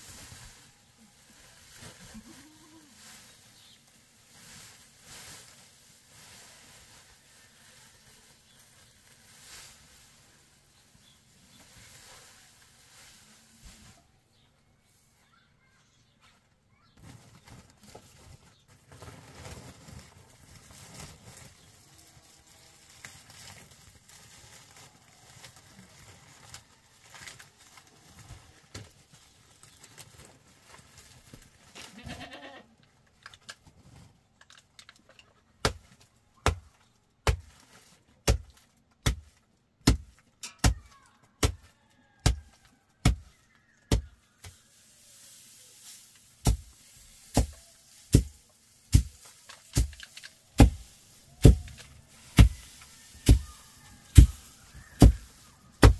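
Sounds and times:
goat bleating: 31.8 - 32.7.

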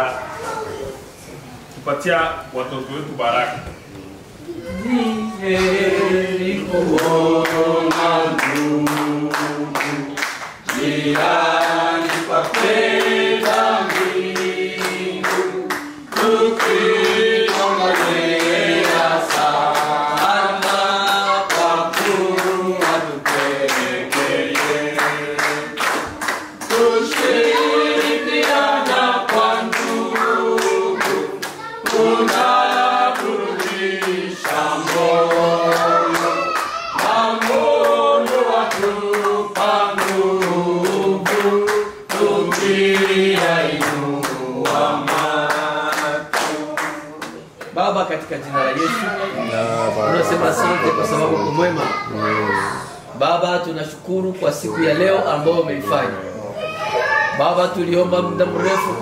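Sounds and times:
group of people singing: 4.6 - 47.6, 57.4 - 59.0
hands clapping a steady beat: 6.9 - 47.8.

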